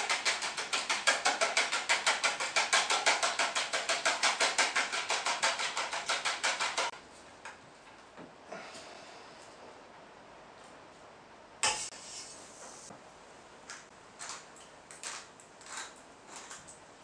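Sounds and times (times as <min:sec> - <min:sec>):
whisk beating in ceramic dish: 0:00.0 - 0:07.0.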